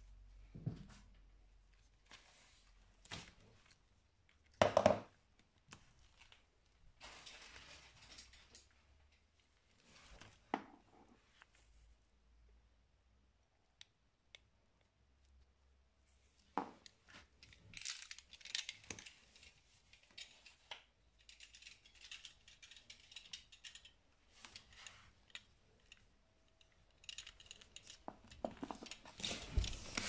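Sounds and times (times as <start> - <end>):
soft rustling: 0.0 - 4.1, 18.8 - 30.0.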